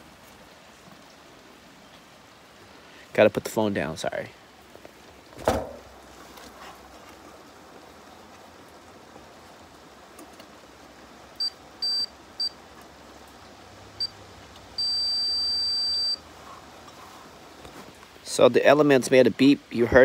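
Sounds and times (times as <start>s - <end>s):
multimeter continuity beeps: 11.4s - 12.6s, 14.8s - 16.2s.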